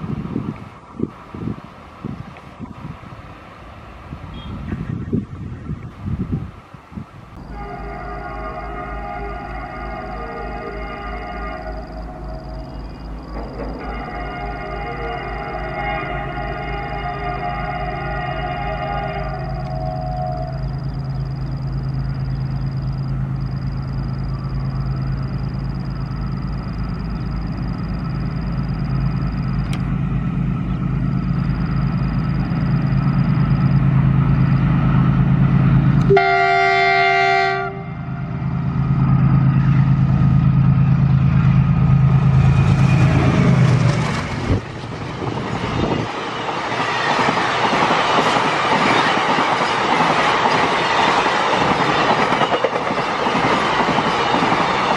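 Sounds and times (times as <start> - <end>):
diesel locomotive engine hum: 0.0 - 54.9
train horn blast: 4.3 - 4.8, 7.4 - 13.0, 13.6 - 21.0, 36.0 - 38.5
wheels clattering on rail: 12.4 - 14.7, 38.5 - 54.9.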